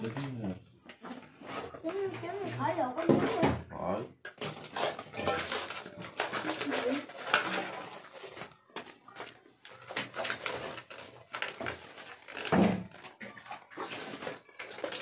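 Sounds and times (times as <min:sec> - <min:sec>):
crab shells scraping metal basin: 0:04.3 - 0:09.2, 0:09.9 - 0:15.0
hands rummaging among crabs: 0:04.4 - 0:15.0.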